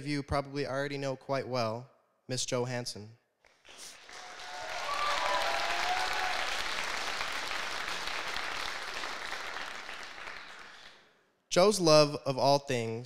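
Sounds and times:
audience applauding: 0:03.5 - 0:11.1.

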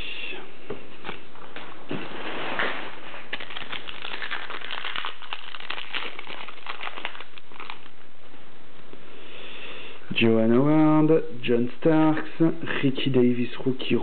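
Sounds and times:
wrapper crinkling and rustling: 0:02.2 - 0:08.2.

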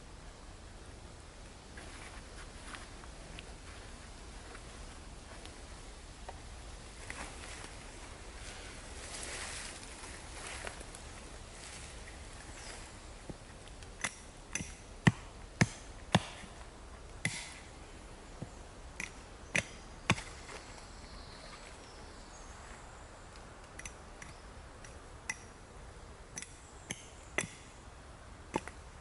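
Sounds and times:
axe striking wooden stake: 0:14.0 - 0:16.6, 0:17.2 - 0:17.7, 0:19.0 - 0:20.4, 0:26.4 - 0:27.6.

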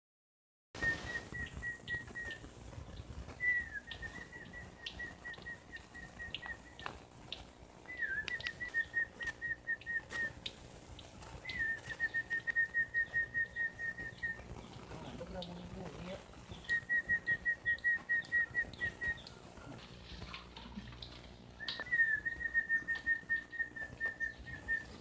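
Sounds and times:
faint clicks: 0:04.8 - 0:12.6.

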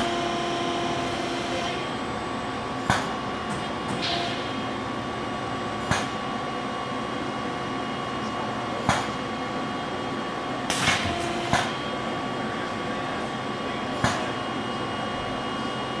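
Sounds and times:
machine hum with held tones: 0:00.0 - 0:16.0
sharp machine clunks: 0:10.7 - 0:11.8.

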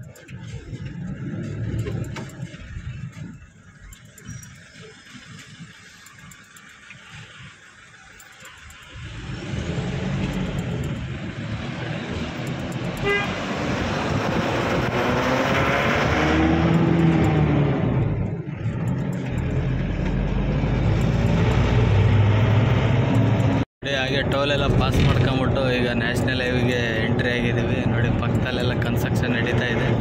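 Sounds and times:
road noise: 0:00.0 - 0:30.0
diesel engine pulling away: 0:07.1 - 0:23.6.

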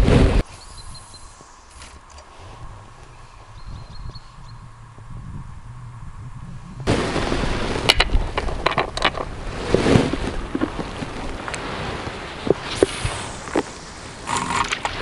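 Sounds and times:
steady hiss: 0:00.0 - 0:05.6, 0:11.3 - 0:15.0.

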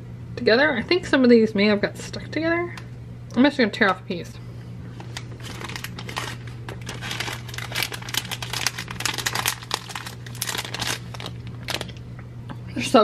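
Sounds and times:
plastic candy pouch crinkling: 0:05.0 - 0:12.0.

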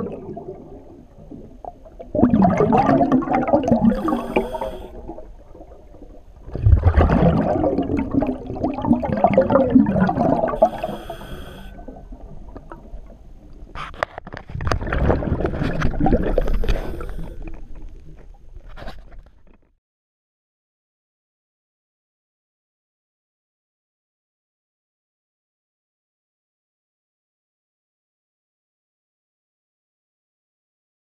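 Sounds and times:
exhaled bubbles rushing: 0:00.0 - 0:11.0, 0:14.5 - 0:17.9
regulator inhalation hiss: 0:03.9 - 0:05.0, 0:10.6 - 0:11.8.

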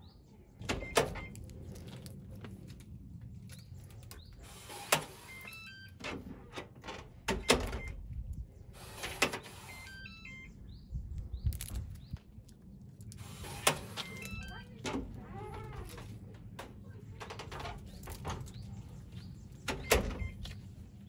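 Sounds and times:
electronic beep tunes: 0:05.3 - 0:06.0, 0:09.6 - 0:10.6, 0:14.0 - 0:14.7.

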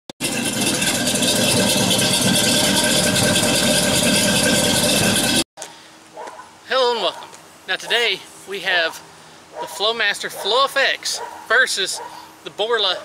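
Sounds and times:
car engine running: 0:00.2 - 0:05.5.

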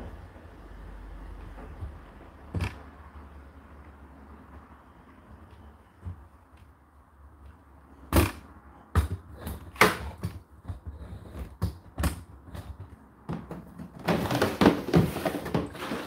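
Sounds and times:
plastic container scraping: 0:13.9 - 0:16.0.

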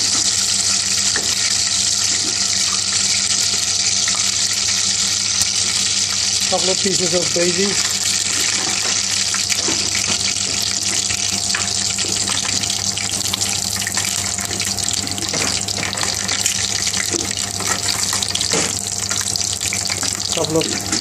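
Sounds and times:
spices sizzling in oil: 0:00.0 - 0:21.0.

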